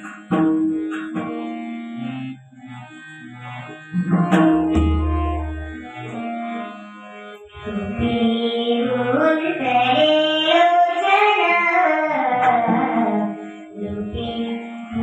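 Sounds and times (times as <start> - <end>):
hand drum: 0.0 - 1.4, 3.9 - 6.2
harmonium: 0.0 - 15.0
girl singing into a microphone: 7.6 - 15.0.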